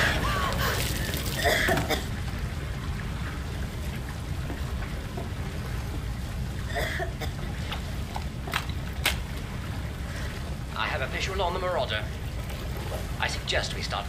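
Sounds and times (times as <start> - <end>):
low rumble of waves: 0.0 - 14.0
water sloshing and splashing: 0.0 - 14.0.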